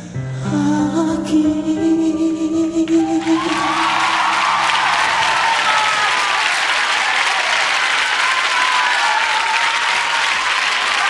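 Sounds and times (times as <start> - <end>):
song music: 0.0 - 6.1
studio audience applauding: 3.2 - 11.0.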